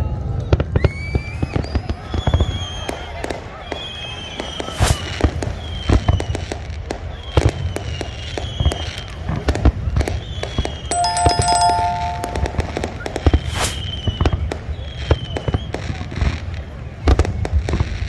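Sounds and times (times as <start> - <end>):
fireworks bangs and crackles: 0.0 - 10.9, 11.7 - 18.0
bell-like chime: 10.9 - 13.0.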